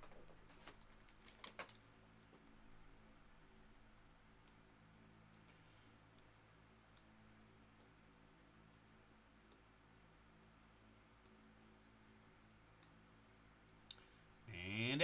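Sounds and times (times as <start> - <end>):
low steady hum: 0.0 - 15.0
faint computer mouse clicks: 6.9 - 7.3, 8.8 - 9.0, 12.1 - 13.0.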